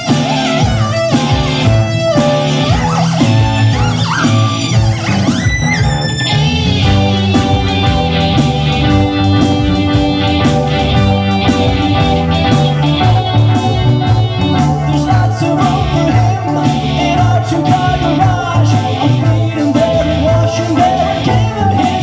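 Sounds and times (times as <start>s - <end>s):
rock band playing: 0.0s - 22.0s
person singing: 11.2s - 22.0s.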